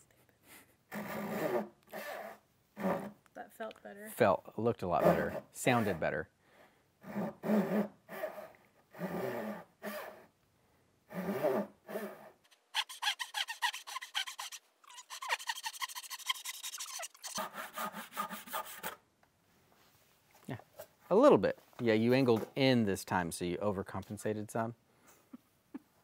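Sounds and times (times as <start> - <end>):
pull saw rasping through wood: 0.9 - 3.2, 5.0 - 6.1, 7.0 - 10.3, 11.1 - 19.0.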